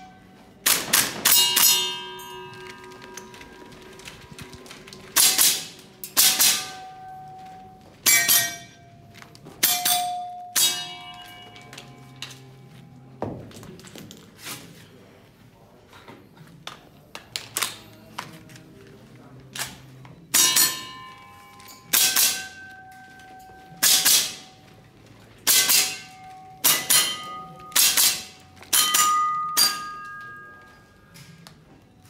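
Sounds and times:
steel targets ringing: 0.0 - 3.4, 5.2 - 12.7, 20.3 - 24.6, 25.4 - 31.2
airsoft rifle shots: 0.6 - 1.9, 5.1 - 7.0, 23.8 - 24.5, 25.4 - 29.9.

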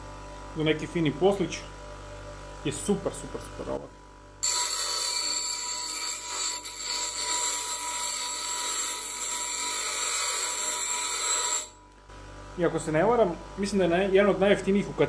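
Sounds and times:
bench grinder grinding steel rod: 4.4 - 11.8.

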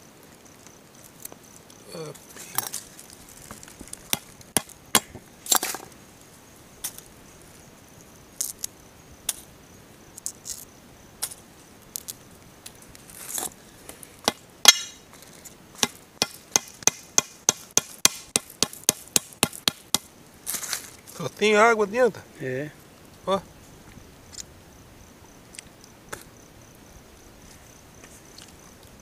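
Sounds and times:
hammer cracking nut on stone: 3.5 - 5.8, 14.2 - 15.0, 15.8 - 20.1.

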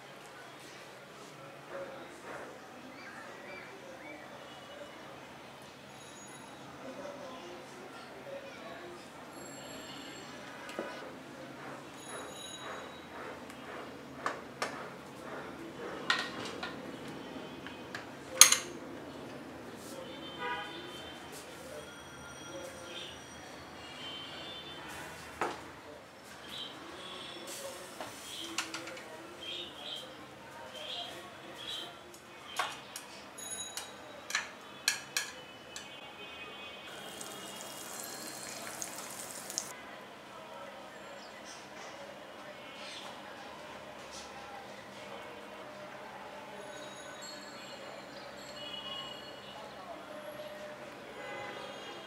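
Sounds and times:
fat sizzling on hot plates: 36.9 - 39.7.

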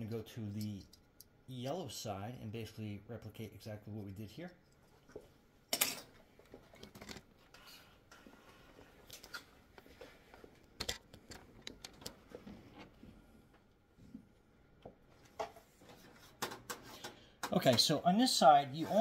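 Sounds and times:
hands clicking and knocking parts: 10.6 - 12.9, 16.3 - 18.0.

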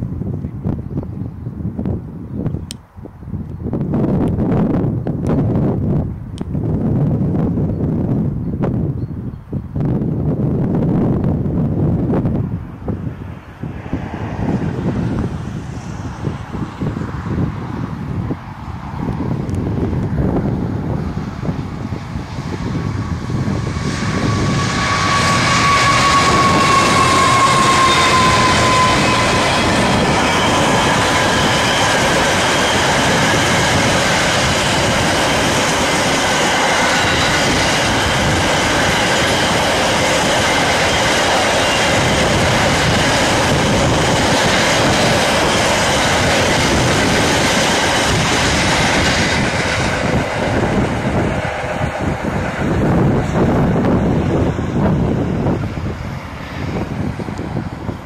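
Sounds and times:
freight train wheels rumbling: 0.0 - 58.0
locomotive whine sliding down: 22.6 - 57.7.

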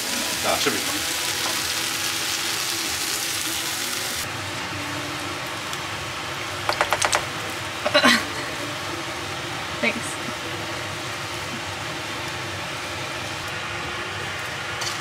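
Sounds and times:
food sizzling in frying pan: 0.0 - 15.0
spoon knocking against pan: 6.7 - 7.2.

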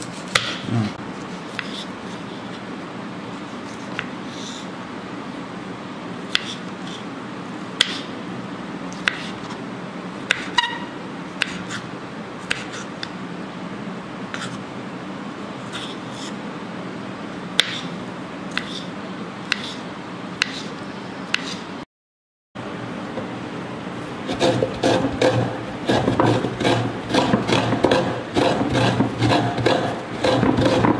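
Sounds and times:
steady low hum: 22.6 - 30.9.

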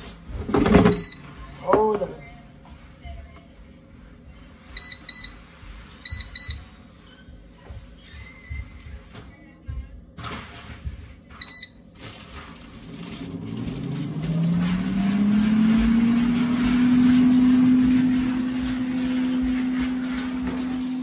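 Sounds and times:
appliance beep: 0.6 - 2.0, 4.7 - 7.3, 11.3 - 12.0
appliance motor humming: 12.8 - 21.0.

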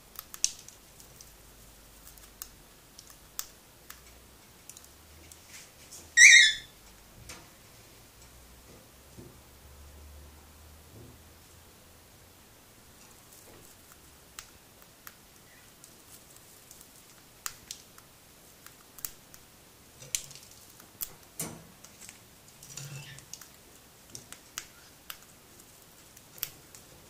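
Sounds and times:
bird beak cracking seeds: 0.1 - 5.0, 13.2 - 27.0.

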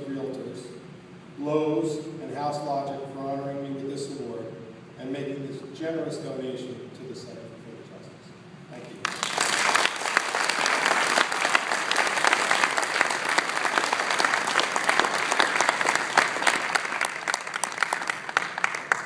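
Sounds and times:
audience applauding: 9.0 - 19.0.

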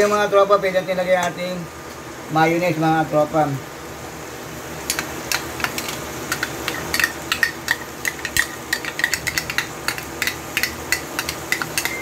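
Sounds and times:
metal spoon clinking on pan: 4.9 - 12.0.

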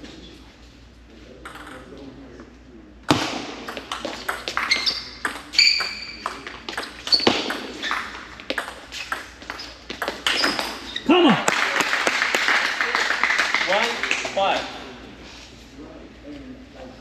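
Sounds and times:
high squeaks: 4.6 - 8.2.

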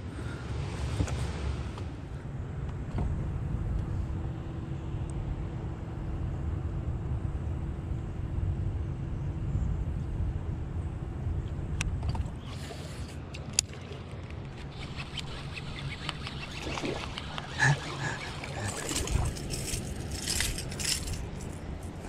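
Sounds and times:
electric motor hum and whine: 0.0 - 22.0
sharp clicks: 13.4 - 17.6.

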